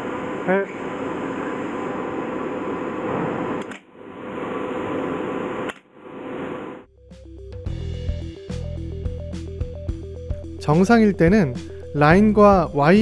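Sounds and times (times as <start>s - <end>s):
machine room hum: 0.0s - 6.9s
sharp clicks: 3.6s - 3.9s
music: 6.9s - 13.0s.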